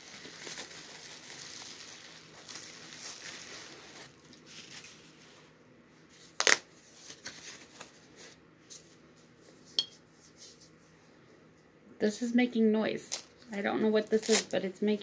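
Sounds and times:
bubble wrap and tissue crinkling: 0.0 - 9.6, 13.0 - 15.0.

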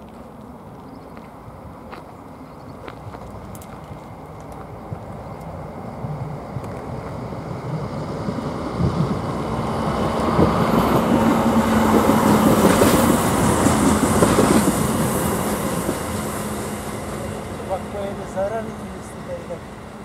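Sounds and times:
diesel railcar engine hum: 0.0 - 20.0.

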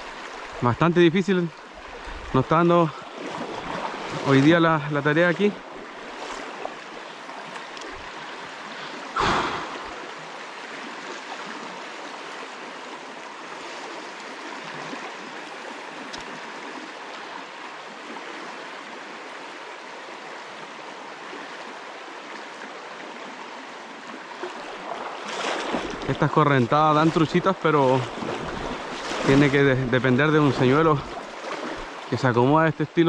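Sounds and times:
river rushing over riffle: 2.2 - 12.1, 24.8 - 33.0
burst of noise: 9.2 - 10.0.

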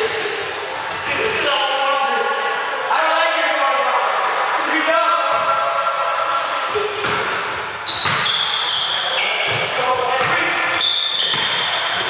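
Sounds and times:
sneaker squeaks: 5.1 - 12.0.

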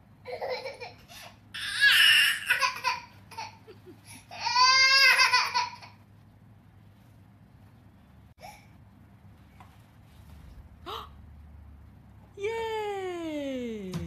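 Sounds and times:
infant crying: 4.3 - 5.8.

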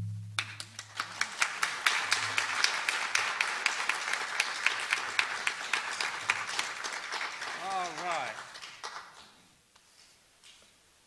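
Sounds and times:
low note of song: 0.0 - 0.6
audience applauding: 0.4 - 9.4.

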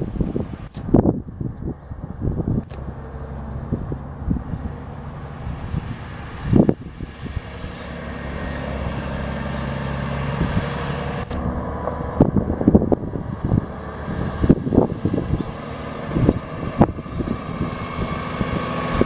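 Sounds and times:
diesel truck engine running: 0.0 - 19.0
low thumps: 11.2 - 15.4.

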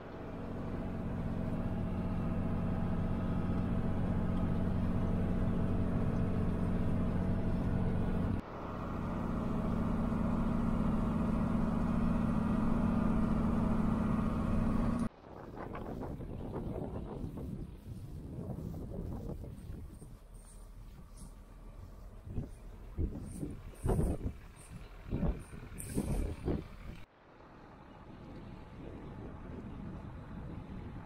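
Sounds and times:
tractor engine droning: 0.0 - 31.0
wind noise on microphone: 15.2 - 27.1, 28.0 - 31.0.

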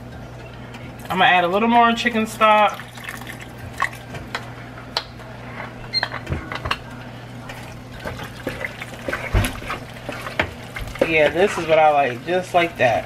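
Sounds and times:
wet stirring: 7.4 - 13.0.

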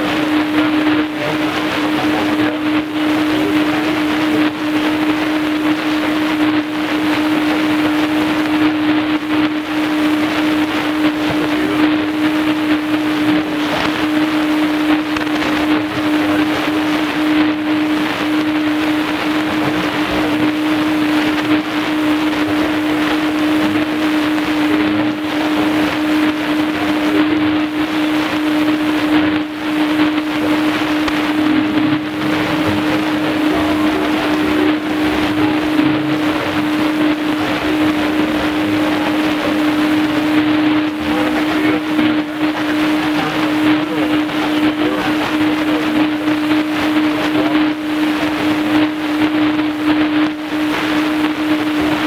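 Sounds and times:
radio static hiss: 0.0 - 52.0
steady low whistle: 0.0 - 52.0.

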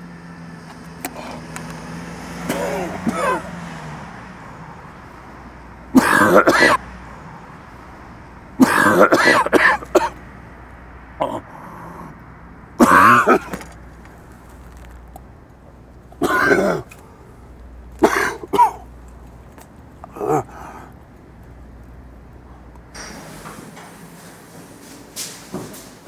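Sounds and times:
man clearing his throat: 2.4 - 3.6, 6.0 - 6.8, 8.6 - 10.2, 11.2 - 12.1, 12.8 - 13.6, 16.2 - 17.0, 18.0 - 18.9, 20.0 - 20.9
man coughing: 2.4 - 3.6, 5.9 - 6.8, 8.6 - 10.2, 11.2 - 12.1, 12.8 - 13.7, 16.2 - 17.0, 18.0 - 18.9, 20.0 - 20.9.

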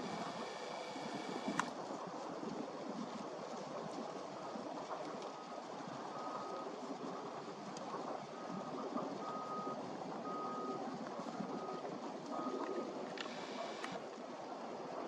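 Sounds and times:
vehicle reversing beeper: 5.4 - 6.8, 8.3 - 14.0.

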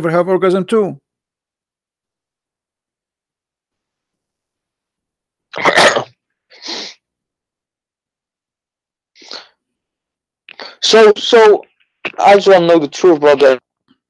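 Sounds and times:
person sneezing: 5.5 - 7.0, 9.2 - 9.6.

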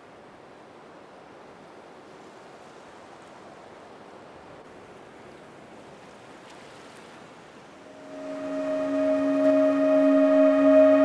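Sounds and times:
wind: 0.0 - 11.0
sea water rushing: 7.8 - 11.0.

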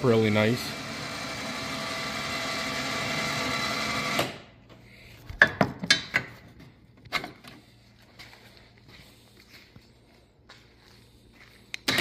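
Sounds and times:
winch motor whining: 0.0 - 4.4.

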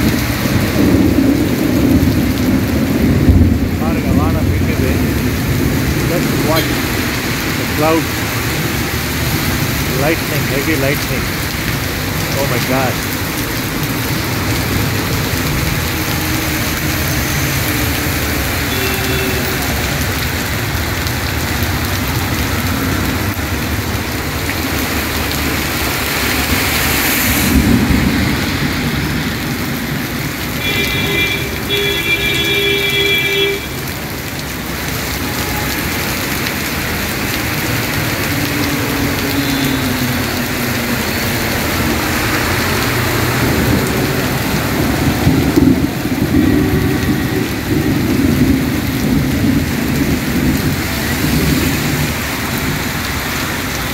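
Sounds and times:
heavy rain on road: 0.0 - 53.9
tyres hissing on wet road: 0.0 - 53.9
vehicle horn blasts: 6.6 - 6.9, 18.7 - 19.7, 30.6 - 33.8.

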